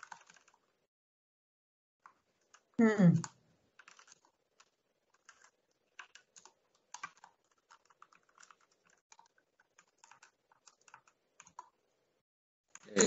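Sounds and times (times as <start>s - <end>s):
typing on computer keyboard: 0.0s - 0.7s, 2.0s - 11.8s.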